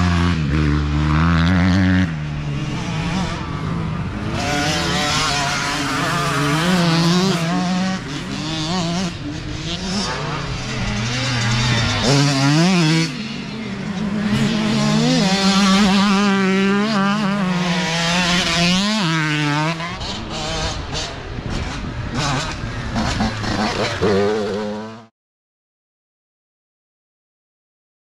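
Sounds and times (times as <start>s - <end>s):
dirt bike engines revving: 0.0s - 25.1s.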